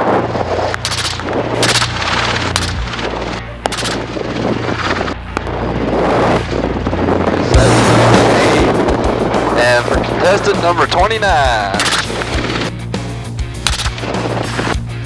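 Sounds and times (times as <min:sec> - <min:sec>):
helicopter rotor drone: 0:00.0 - 0:15.0
gunshots: 0:00.7 - 0:04.5, 0:07.5 - 0:10.8, 0:11.4 - 0:12.7, 0:13.6 - 0:14.8.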